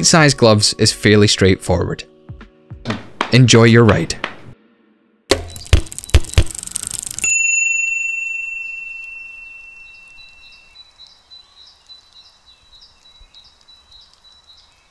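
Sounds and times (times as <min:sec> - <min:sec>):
bicycle bell ringing: 0:06.5 - 0:10.6
faint bird chirps: 0:08.9 - 0:14.9.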